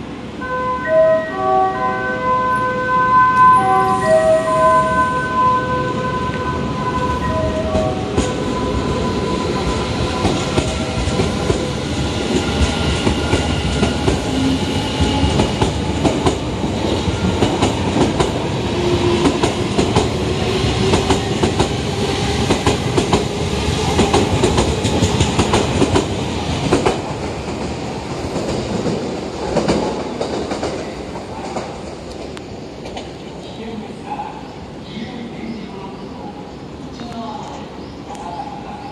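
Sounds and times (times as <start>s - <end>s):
electric train running past: 0.0s - 38.9s
musical train horn: 0.4s - 10.8s
train wheels clicking over rail joints: 22.4s - 33.4s.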